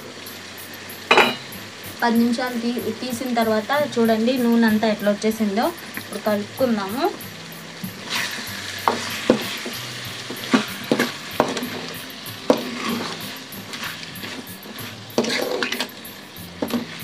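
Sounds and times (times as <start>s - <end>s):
masala sizzling in oil: 0.0s - 17.0s
metal spoon scraping pan: 10.3s - 11.8s, 12.5s - 16.0s.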